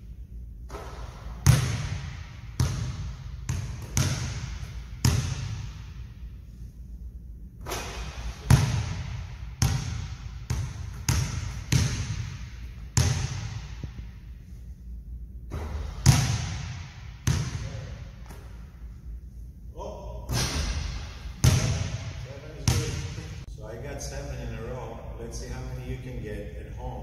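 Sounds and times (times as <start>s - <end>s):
basketball bouncing on wooden floor: 0.7s - 5.9s, 7.7s - 14.1s, 15.5s - 17.6s.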